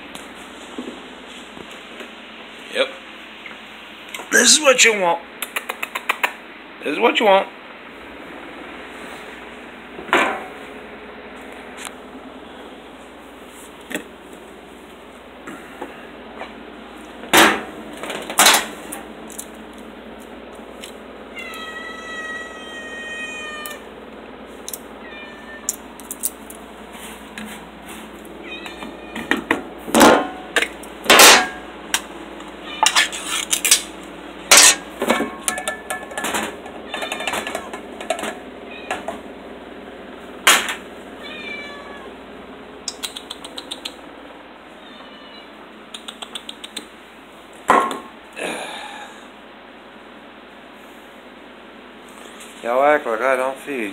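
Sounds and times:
cats meowing: 0:21.3 - 0:24.0, 0:24.7 - 0:26.0, 0:28.3 - 0:29.5, 0:32.5 - 0:33.3, 0:36.7 - 0:37.8, 0:38.6 - 0:39.2, 0:41.2 - 0:42.2, 0:44.7 - 0:46.7.

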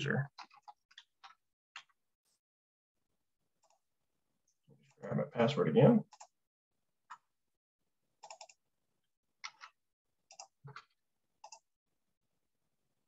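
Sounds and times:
computer keyboard clicks: 0:08.2 - 0:08.6, 0:10.3 - 0:11.6.

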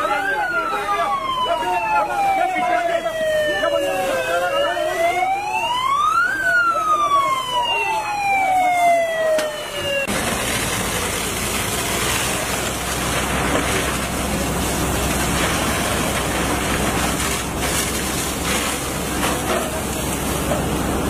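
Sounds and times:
fire hose spraying water: 0:00.0 - 0:21.0
engine running: 0:09.7 - 0:21.0.

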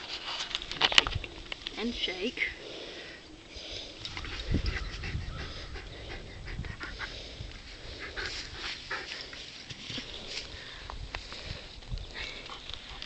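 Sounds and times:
dog panting: 0:04.1 - 0:09.5.

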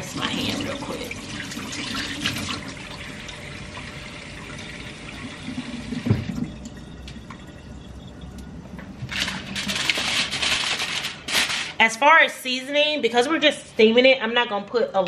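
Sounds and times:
faucet running: 0:00.0 - 0:07.6.

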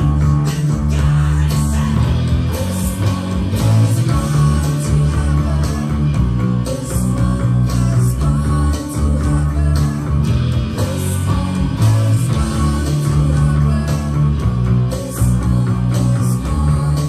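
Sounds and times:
electric bass guitar: 0:00.0 - 0:17.0
rock backing track with drums: 0:00.0 - 0:17.0.

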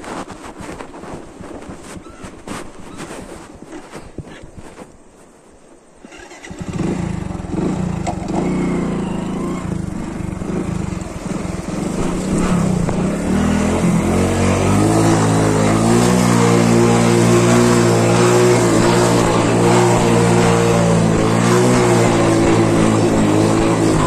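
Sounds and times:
motorcycle engine running: 0:06.0 - 0:24.0
water splashing: 0:09.1 - 0:14.1.

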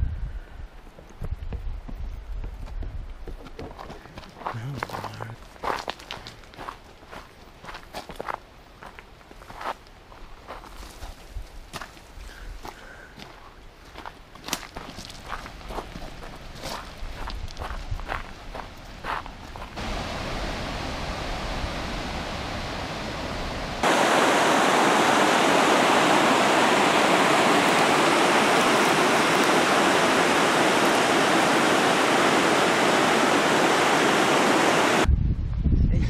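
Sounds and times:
creek rushing over boulders: 0:19.6 - 0:35.1.

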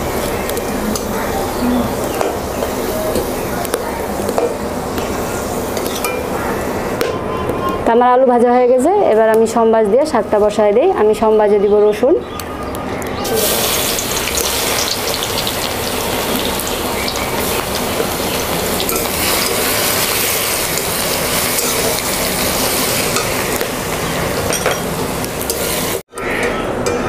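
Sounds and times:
garlic sizzling in hot oil: 0:13.2 - 0:26.0.

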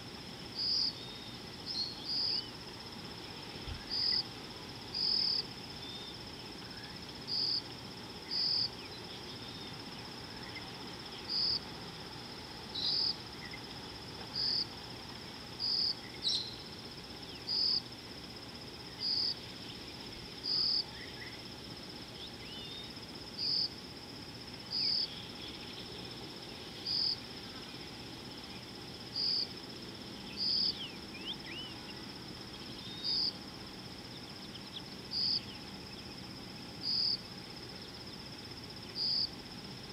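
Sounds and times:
insect calling pulse: 0:00.0 - 0:39.9
insects droning: 0:00.0 - 0:39.9
faint bird chirps: 0:00.6 - 0:02.6, 0:03.3 - 0:04.2, 0:08.2 - 0:11.6, 0:12.7 - 0:13.6, 0:14.3 - 0:14.7, 0:15.6 - 0:17.8, 0:22.2 - 0:23.7, 0:30.2 - 0:33.4.

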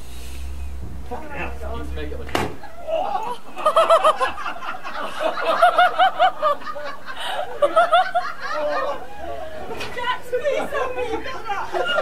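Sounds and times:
person laughing: 0:02.8 - 0:09.5.

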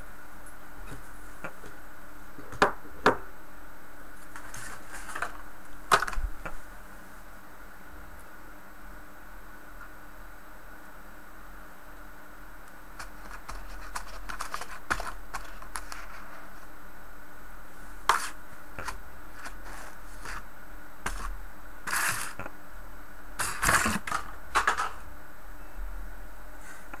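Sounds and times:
scraping rustles: 0:04.2 - 0:05.4, 0:18.1 - 0:20.5.

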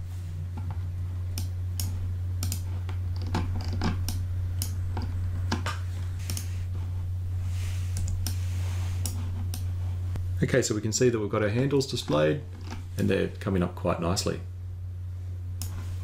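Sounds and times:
low electrical hum: 0:00.0 - 0:16.0
keyboard and mouse clicks: 0:01.4 - 0:06.5.

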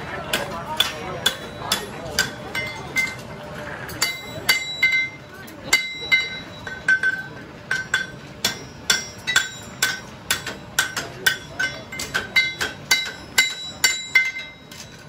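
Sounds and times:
hammer striking horseshoe: 0:00.3 - 0:03.3, 0:03.9 - 0:15.0.

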